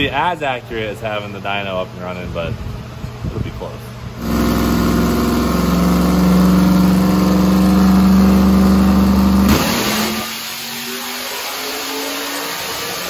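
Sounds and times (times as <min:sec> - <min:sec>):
dyno roller noise: 0:04.2 - 0:11.6
engine at full throttle: 0:04.2 - 0:13.0.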